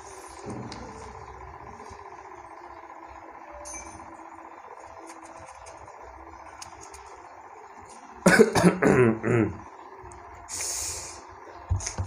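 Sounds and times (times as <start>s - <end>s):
man coughing: 8.2s - 9.6s.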